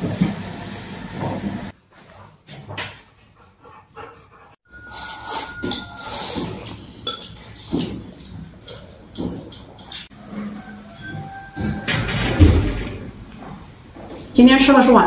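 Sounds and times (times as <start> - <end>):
dishes and bowls clinking: 4.7 - 13.6.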